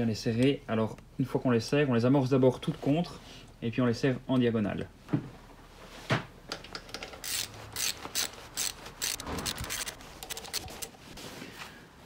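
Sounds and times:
ratchet wrench clicking: 7.0s - 10.9s.

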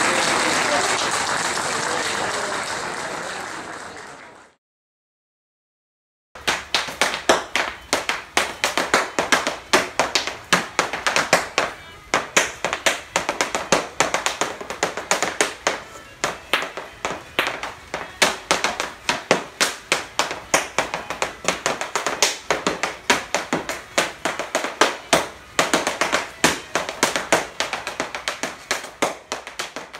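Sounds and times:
hard shoes tapping on wooden board: 6.4s - 29.9s.

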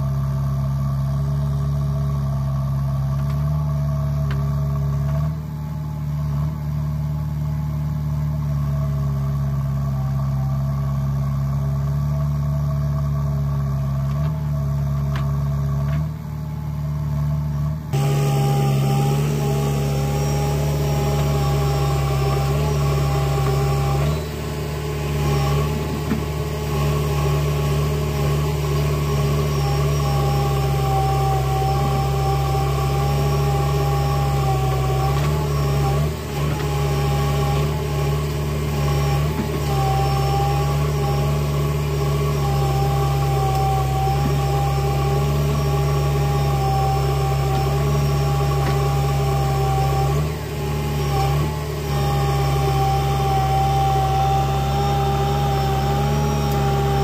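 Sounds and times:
diesel engine running: 0.0s - 57.0s
steady whine: 14.0s - 57.0s.

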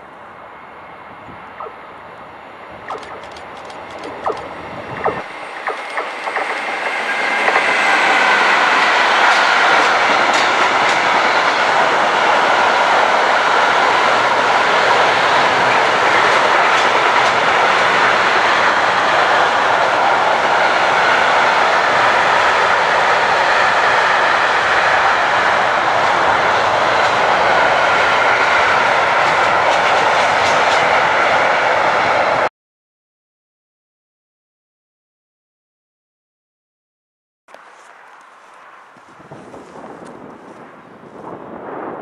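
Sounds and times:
freight train passing: 0.0s - 32.5s, 37.5s - 42.0s
train wheels clicking over rails: 2.8s - 31.7s.

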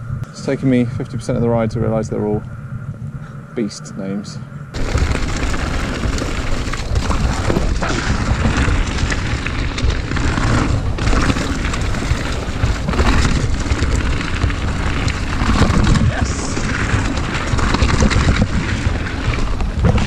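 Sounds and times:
tyre noise on dirt trail: 0.0s - 20.0s
wind buffeting microphone: 0.0s - 20.0s
bike clicks and rattles: 4.8s - 20.0s.

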